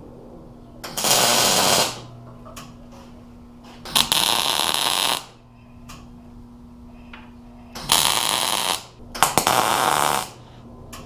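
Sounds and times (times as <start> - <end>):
welder arc crackling and sizzling: 0.8 - 2.1, 3.8 - 5.4, 7.8 - 10.6.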